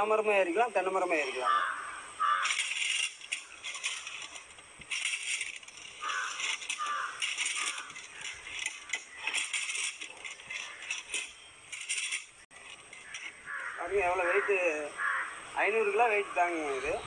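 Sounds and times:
crows cawing: 1.4 - 4.1, 5.9 - 9.2, 13.0 - 15.6
metal device scraping tree trunk: 2.2 - 14.7.

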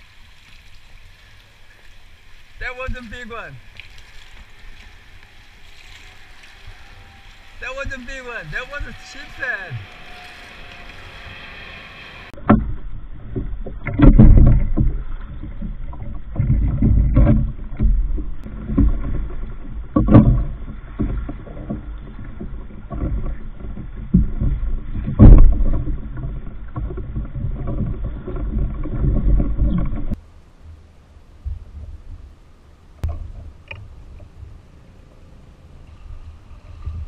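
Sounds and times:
water sloshing against kayak hull: 0.0 - 37.0
knocks on kayak hull: 22.4 - 30.0.

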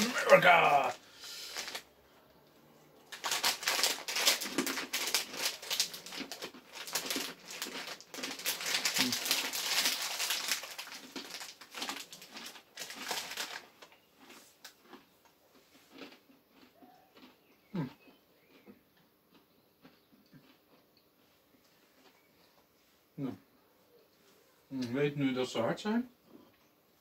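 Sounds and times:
plastic snack bag crinkling: 0.0 - 1.9, 3.1 - 15.0.

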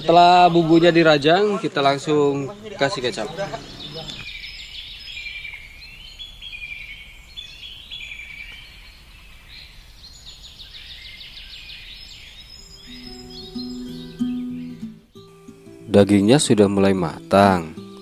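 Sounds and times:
high-pitched chirping trills: 12.5 - 18.0.

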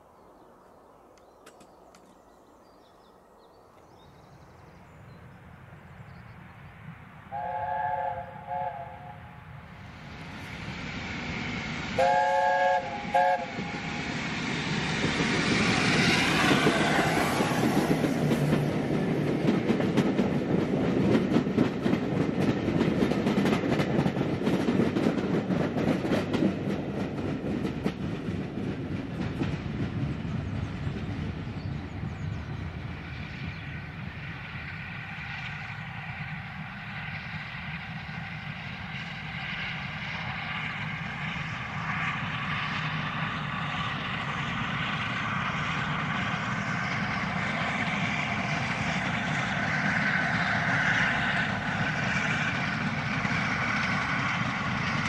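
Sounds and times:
train passing rush: 0.0 - 55.0
steam locomotive chime whistle: 7.3 - 9.4, 12.0 - 13.9.

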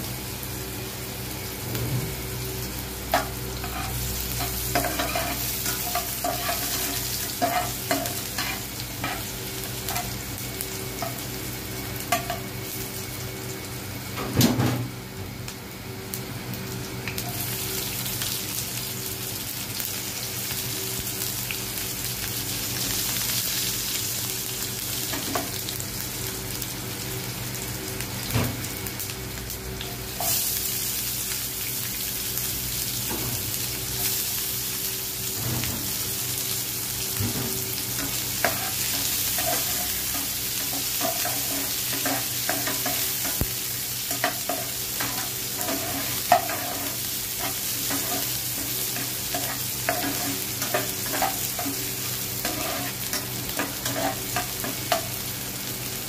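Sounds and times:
spices sizzling in hot oil: 0.0 - 56.0
metal spatula scraping pan: 52.4 - 54.2.

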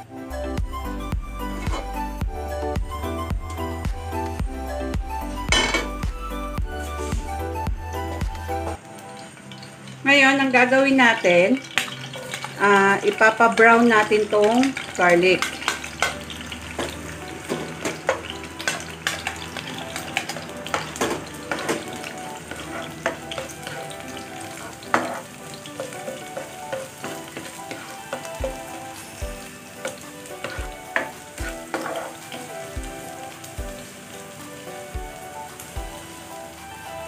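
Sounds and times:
garlic sizzling in oil: 0.0 - 37.0
spatula scraping pan: 1.5 - 2.0, 14.8 - 32.5.

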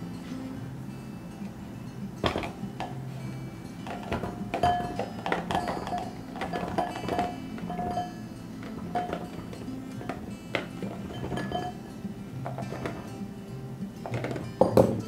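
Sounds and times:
soft background music: 0.0 - 15.0
plums knocking into glass bowl: 2.2 - 3.0, 3.8 - 8.0, 8.6 - 11.8, 14.0 - 15.0.

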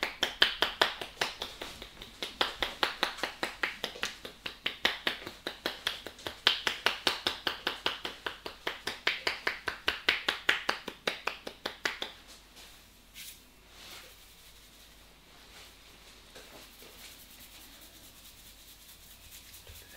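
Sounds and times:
hands slapping on head: 0.0 - 12.2
faint rubbing: 12.6 - 19.9.

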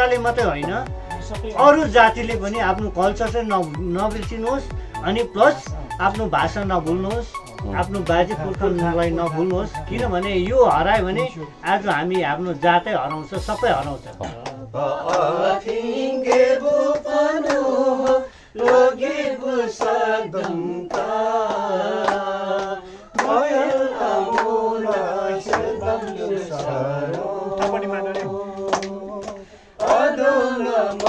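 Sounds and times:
hand claps: 13.4 - 18.9, 19.8 - 31.0
group singing drawn-out notes: 13.9 - 31.0.

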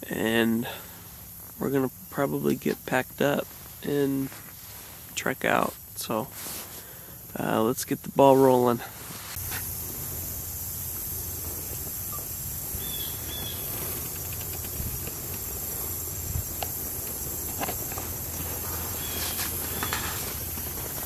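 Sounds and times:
rustles: 0.5 - 21.0
faint chirps: 9.4 - 17.4
high-pitched insect buzz: 9.4 - 21.0.

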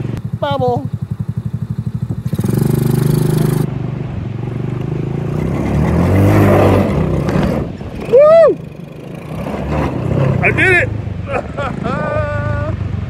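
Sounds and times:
small gasoline engine under load: 0.0 - 5.7.

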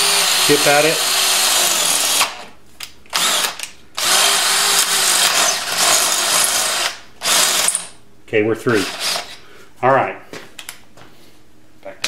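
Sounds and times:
cordless drill drilling metal: 0.0 - 2.5, 3.1 - 8.0, 8.8 - 9.4.

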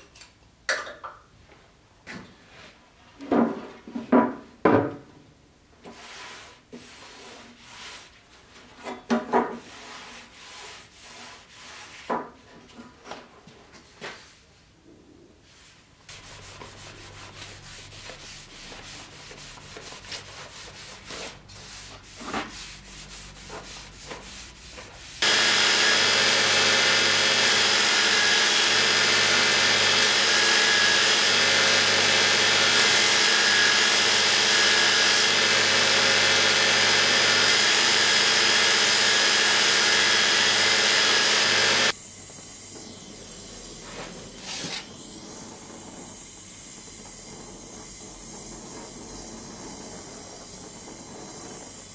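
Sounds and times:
rubbing and handling noises: 9.4 - 14.7, 15.4 - 25.2
belt grinder grinding steel blade: 25.2 - 42.0.

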